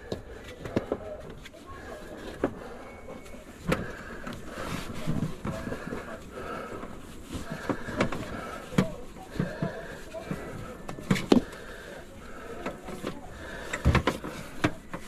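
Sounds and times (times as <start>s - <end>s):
gloved hands knocking cables: 12.6s - 15.0s.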